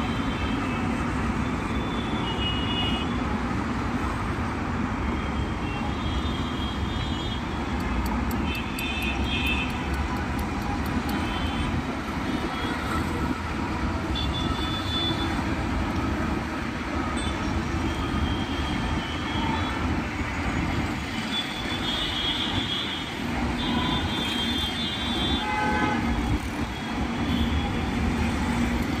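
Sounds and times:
highway traffic noise: 0.0s - 29.0s
vehicle horns honking: 14.1s - 15.4s, 21.2s - 28.3s.

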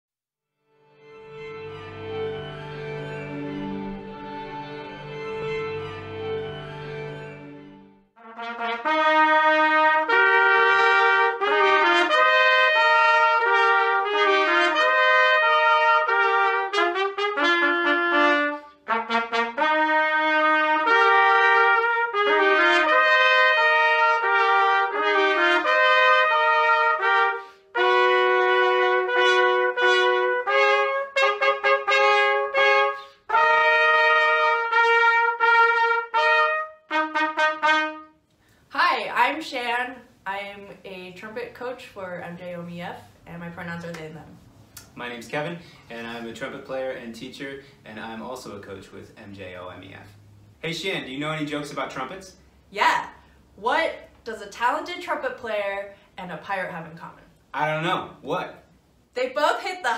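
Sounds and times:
trumpet duet: 1.2s - 38.2s.

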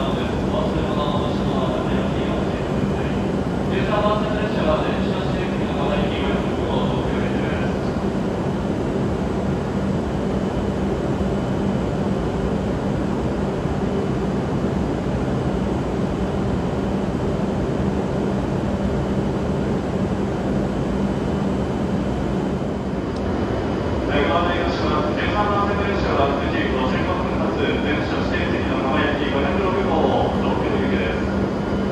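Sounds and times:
faint high whine: 0.0s - 16.1s
stationary train equipment hum: 0.0s - 31.9s.

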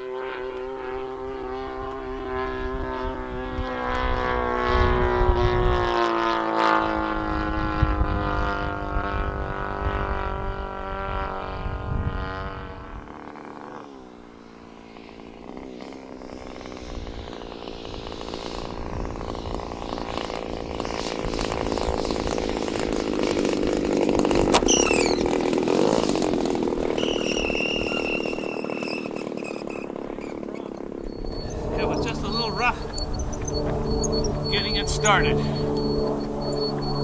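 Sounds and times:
model plane engine running: 0.0s - 37.0s
person speaking: 31.7s - 32.9s, 34.4s - 35.6s.

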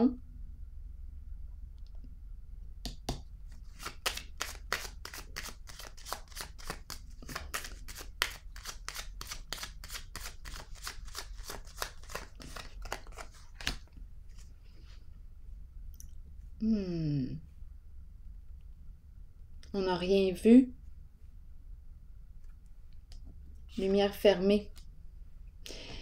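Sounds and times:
cards being shuffled: 2.9s - 14.5s.

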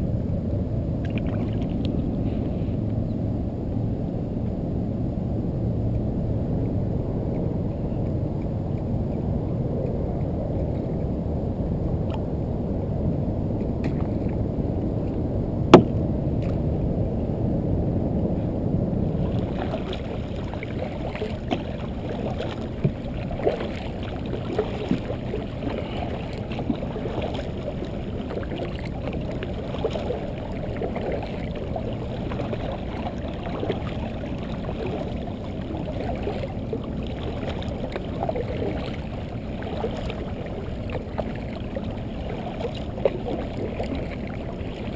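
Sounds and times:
low rumble: 0.0s - 42.2s
paddle splashes: 1.0s - 3.0s, 15.7s - 16.8s, 18.4s - 44.9s
water sloshing against kayak hull: 1.0s - 3.1s, 15.0s - 17.0s, 18.4s - 44.9s
sharp knock: 15.8s - 16.0s.

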